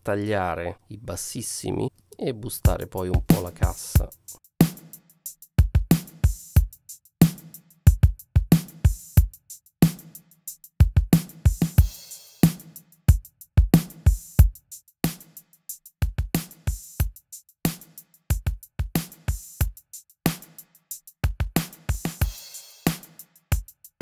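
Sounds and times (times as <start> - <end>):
drum loop with kick and snare: 2.4 - 24.0.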